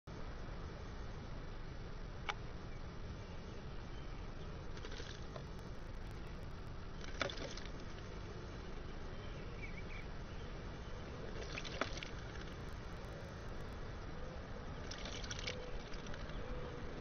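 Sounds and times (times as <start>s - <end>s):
bird splashing water: 4.7s - 6.3s, 7.0s - 8.1s, 11.2s - 13.6s, 14.8s - 16.6s.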